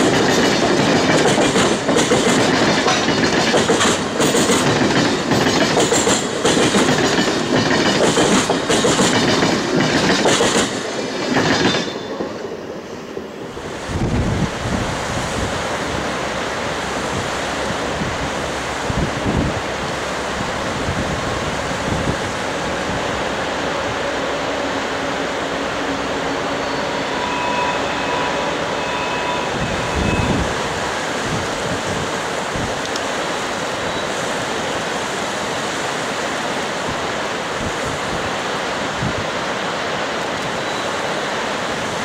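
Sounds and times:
river rushing: 0:00.0 - 0:42.0
wind buffeting microphone: 0:13.6 - 0:16.2, 0:16.8 - 0:24.1, 0:29.5 - 0:32.9.

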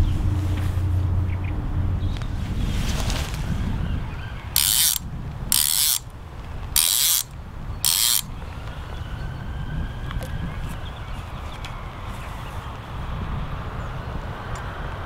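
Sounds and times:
fishing reel ratchet rasping: 0:04.6 - 0:08.3.

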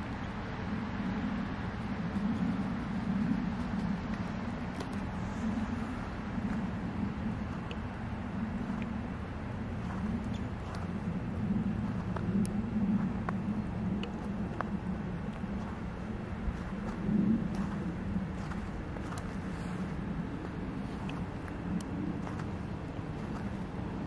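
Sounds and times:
vehicle engine rumble: 0:00.0 - 0:24.0
faint clicks: 0:03.3 - 0:05.2, 0:07.4 - 0:07.9.

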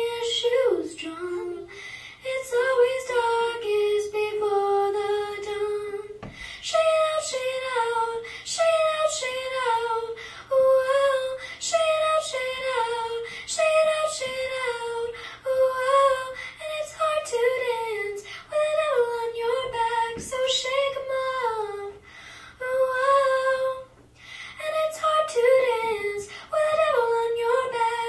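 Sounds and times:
girl singing into microphone: 0:00.0 - 0:28.0.

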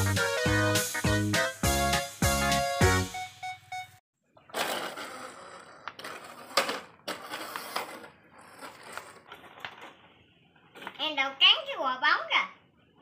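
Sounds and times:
plastic toys rolling on concrete: 0:04.4 - 0:11.0.

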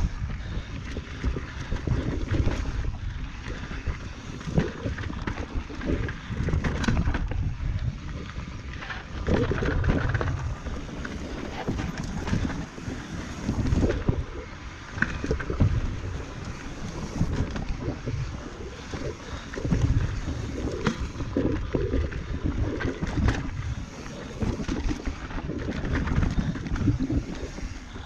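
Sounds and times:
wind buffeting microphone: 0:00.0 - 0:28.0
bike knocks and rattles: 0:04.4 - 0:07.5
tyres rushing on dirt: 0:08.8 - 0:19.5.

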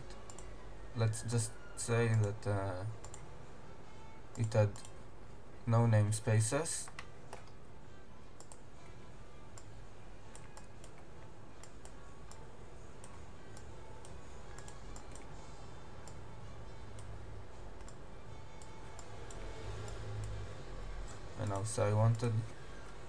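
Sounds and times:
low background hum: 0:00.0 - 0:23.0
computer mouse clicks: 0:00.1 - 0:00.5, 0:02.1 - 0:02.4, 0:03.0 - 0:03.2, 0:04.3 - 0:05.0, 0:08.4 - 0:08.6, 0:10.3 - 0:12.4, 0:13.0 - 0:15.3, 0:17.8 - 0:18.0, 0:21.1 - 0:23.0.

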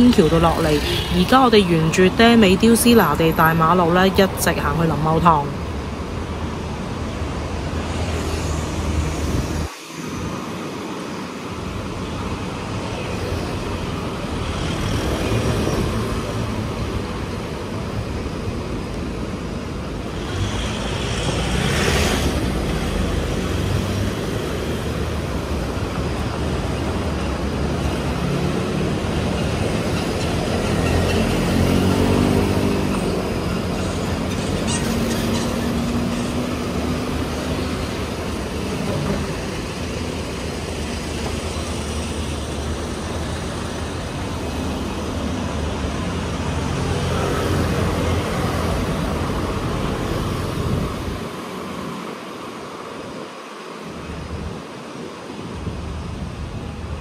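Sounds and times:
cars and motorbikes passing: 0:00.0 - 0:57.0.

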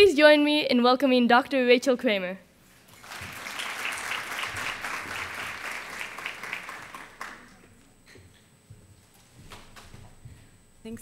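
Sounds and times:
audience applauding: 0:02.9 - 0:07.8.

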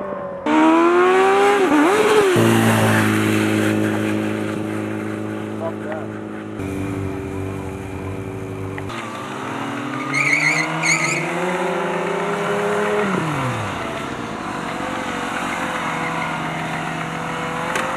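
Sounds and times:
motorcycle engine revving: 0:00.0 - 0:17.9
tyre squeals: 0:10.0 - 0:11.4.

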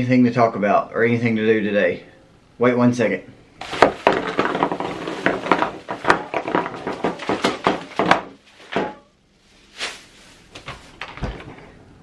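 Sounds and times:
objects knocking on wooden desk: 0:03.6 - 0:09.0
plastic bags rustling: 0:03.6 - 0:11.7.

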